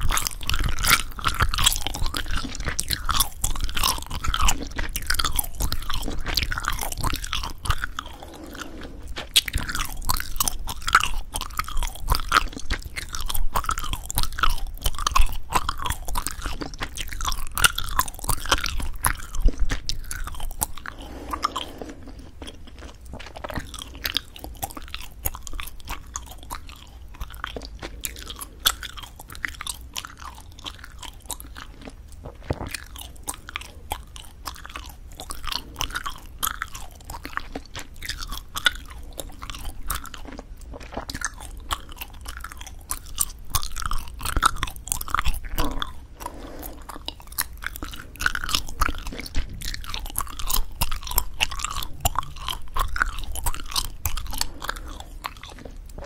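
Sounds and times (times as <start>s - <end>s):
gum chewing: 0.0s - 56.0s
gum snapping and cracking: 22.6s - 46.0s, 47.0s - 56.0s.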